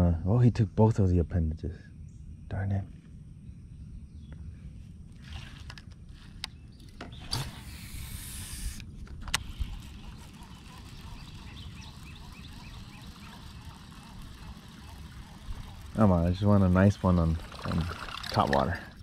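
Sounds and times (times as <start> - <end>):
fishing line hissing off spool: 5.1 - 19.0
reel click: 7.2 - 16.1
reel ticking while reeling in: 7.3 - 19.0.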